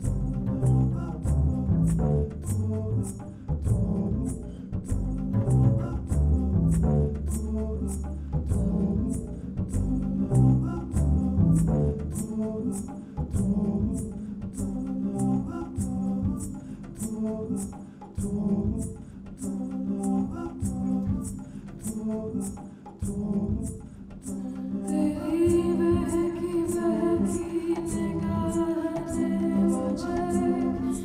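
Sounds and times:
double bass low notes: 0.0s - 22.0s, 23.0s - 31.0s
woman singing: 24.2s - 31.0s.

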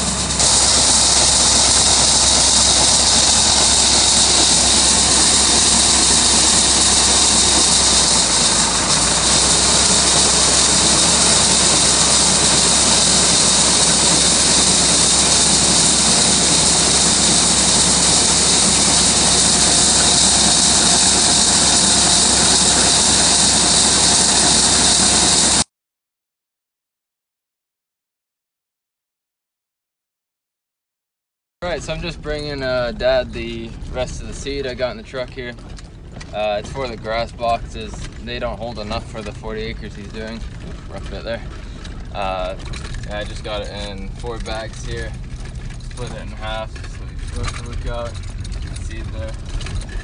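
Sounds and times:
auger pouring seed: 0.0s - 25.6s, 31.7s - 50.0s
loud even hiss: 0.0s - 25.7s
steady engine: 0.0s - 25.7s, 31.6s - 50.0s.

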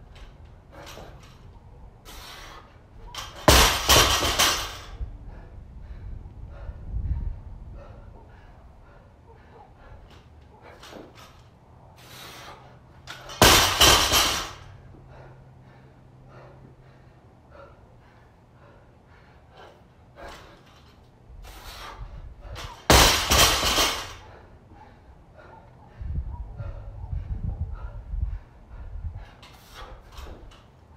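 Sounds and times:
bouncing rattle of plates: 3.1s - 5.0s, 13.1s - 14.8s, 22.6s - 24.3s
barbell slamming on rubber mats: 3.2s - 4.9s, 13.2s - 14.6s, 22.7s - 24.2s.

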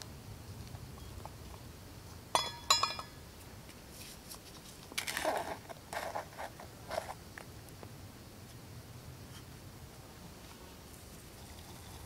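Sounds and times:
metal pot lid clinks: 2.4s - 3.2s.

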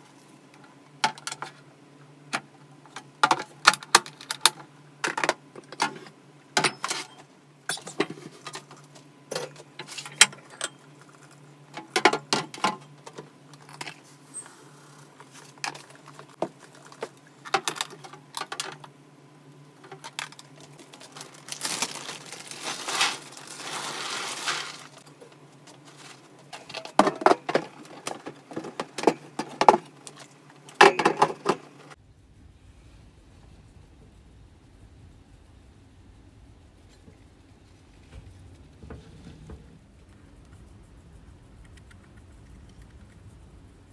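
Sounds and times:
rustling hiss: 10.9s - 18.3s, 19.5s - 43.9s.

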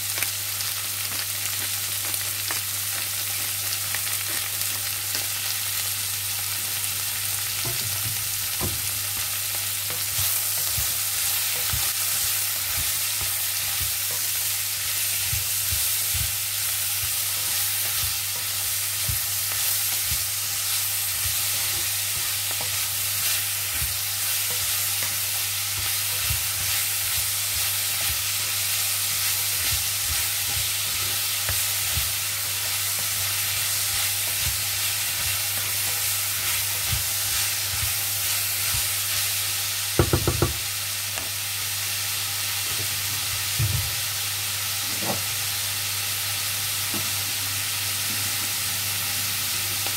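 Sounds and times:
vegetables sizzling in a wok: 0.0s - 49.9s
wooden spatula scraping a pan: 9.9s - 39.3s.

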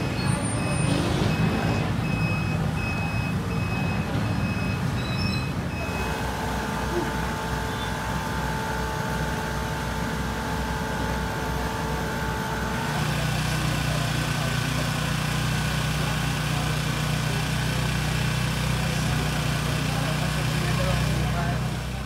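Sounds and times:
high electronic beeps: 0.0s - 6.2s
small engine running: 5.7s - 22.0s.

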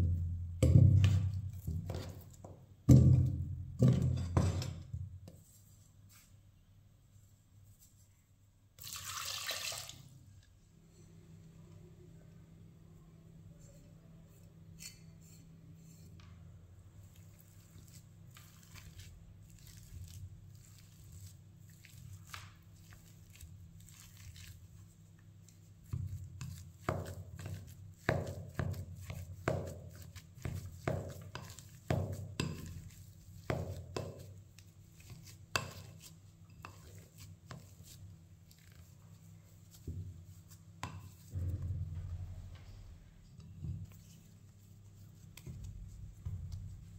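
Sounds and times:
light taps and scrapes: 13.5s - 16.4s.

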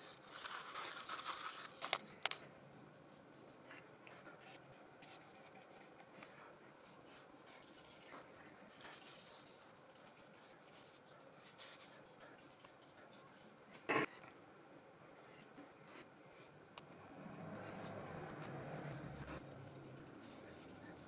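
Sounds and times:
paintbrush swishing on paper: 17.6s - 21.0s.

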